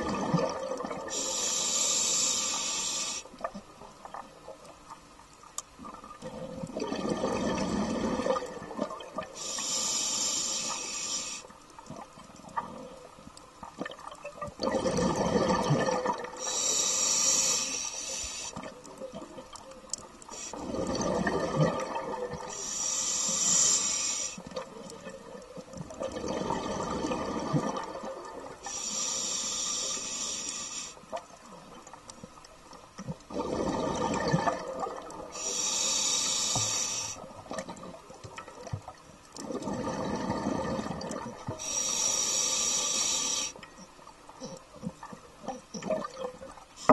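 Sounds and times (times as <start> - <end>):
exhaled bubbles rushing: 0.0 - 1.1, 6.2 - 9.3, 14.6 - 16.4, 20.6 - 22.5, 25.9 - 28.6, 33.2 - 35.3, 39.4 - 41.5
regulator inhale hiss: 1.1 - 3.4, 9.3 - 11.7, 16.4 - 18.7, 20.3 - 20.6, 22.5 - 24.6, 28.6 - 31.2, 35.3 - 37.4, 41.6 - 43.7.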